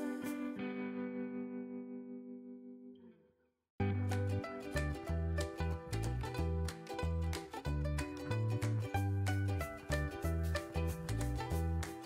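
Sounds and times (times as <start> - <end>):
upbeat background music: 3.8 - 12.0.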